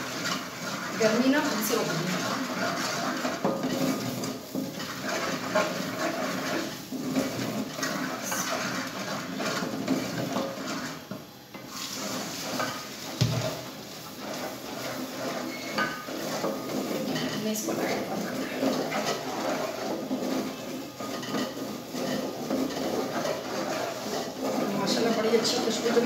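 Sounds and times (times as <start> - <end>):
spoon scraping a metal pot: 0.0 - 26.0.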